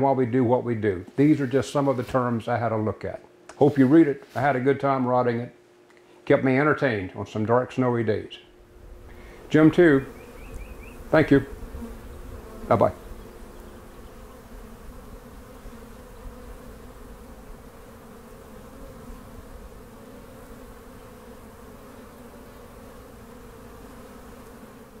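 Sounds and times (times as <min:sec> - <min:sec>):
honeybees buzzing: 0:08.5 - 0:25.0.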